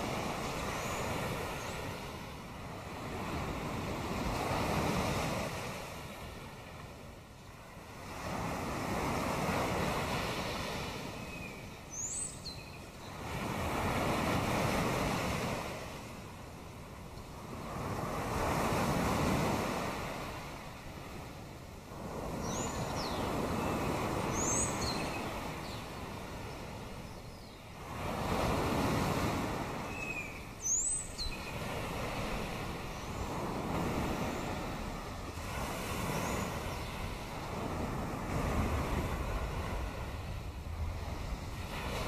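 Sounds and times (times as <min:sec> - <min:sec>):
high falling bird calls: 0:22.4 - 0:26.0, 0:29.8 - 0:31.8.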